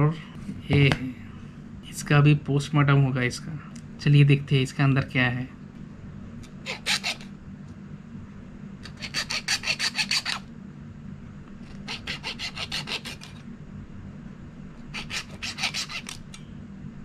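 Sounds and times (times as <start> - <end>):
hacksaw sawing rubber: 6.6 - 7.2, 8.9 - 10.4, 11.7 - 13.4, 14.9 - 16.2.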